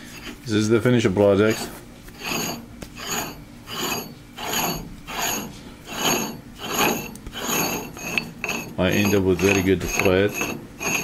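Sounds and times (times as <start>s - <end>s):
metal nut scraping on threads: 0.0s - 0.5s, 1.4s - 11.0s.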